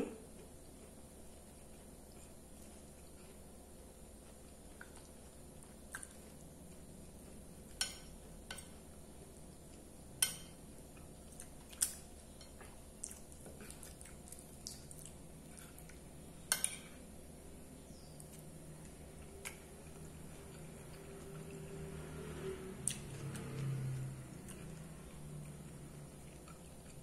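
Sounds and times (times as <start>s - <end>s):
quiet chewing: 0.0s - 10.0s, 10.7s - 17.1s, 22.8s - 27.0s.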